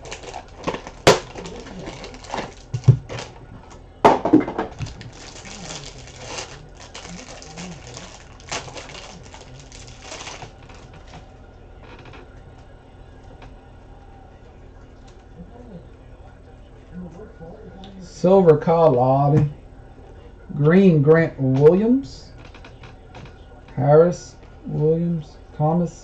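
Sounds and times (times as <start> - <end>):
plastic wrapper crinkling and tearing: 0.0 - 3.4, 4.7 - 11.2.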